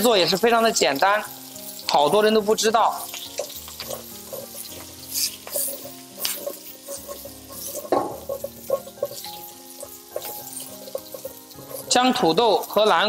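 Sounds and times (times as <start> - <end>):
food sizzling in a wok: 0.0 - 13.0
spatula scraping wok: 3.0 - 13.0.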